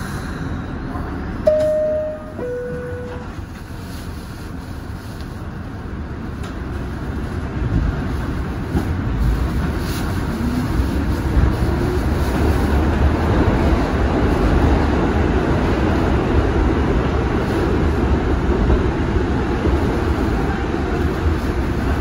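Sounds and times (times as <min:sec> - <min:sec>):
train wheels and motors rumbling: 0:00.0 - 0:22.0
two-note falling chime: 0:01.5 - 0:03.3.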